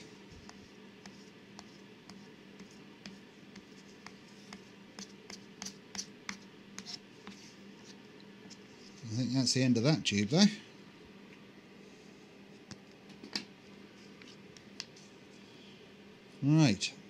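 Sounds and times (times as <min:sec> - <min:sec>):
glue stick rubbing on paper: 0:00.4 - 0:09.0.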